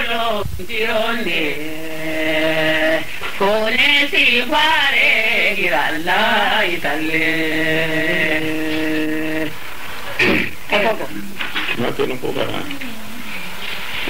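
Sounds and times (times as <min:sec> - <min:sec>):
solo voice chanting: 0:00.0 - 0:09.6.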